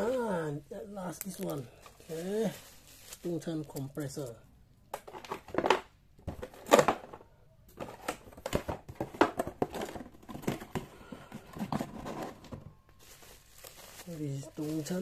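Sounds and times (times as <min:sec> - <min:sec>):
bubble wrap and cardboard rustling: 0:00.0 - 0:04.3, 0:07.8 - 0:15.0.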